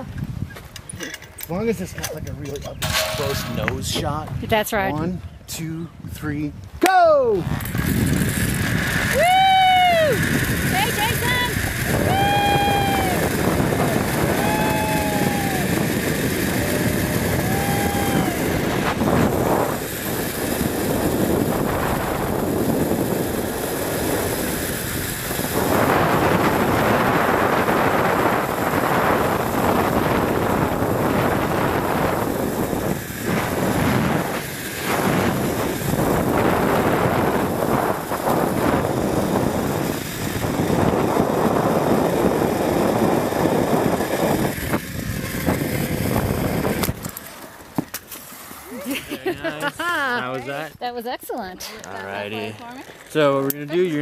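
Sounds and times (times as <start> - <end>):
wind rushing over microphone: 0.0 - 47.2
zip-line pulleys whirring on cable: 7.3 - 49.0.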